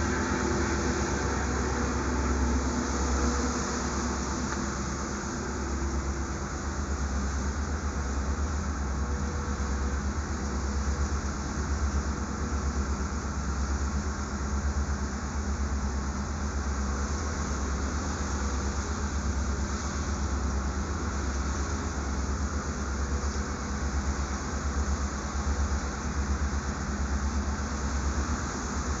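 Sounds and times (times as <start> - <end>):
water rushing: 0.0 - 6.9
boat diesel engine running: 0.0 - 29.0
wind: 0.0 - 29.0.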